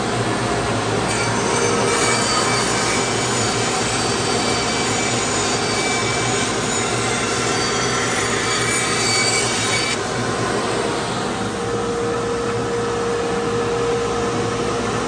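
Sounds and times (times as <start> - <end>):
band saw cutting wood: 1.0 - 11.7.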